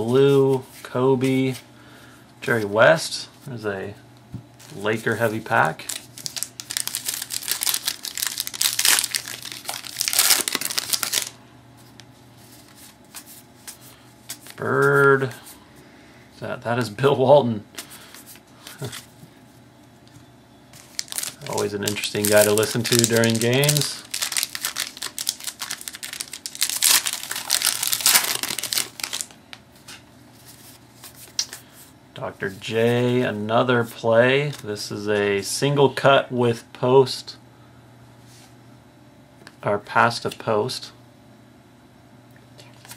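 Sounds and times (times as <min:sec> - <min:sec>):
wrapper crinkling and tearing: 0:05.7 - 0:11.4, 0:20.8 - 0:29.4.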